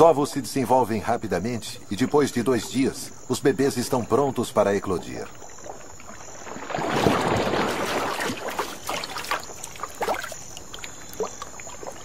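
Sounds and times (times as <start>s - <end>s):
water drips and plops: 4.8s - 12.0s
fish splashing water: 5.3s - 12.0s.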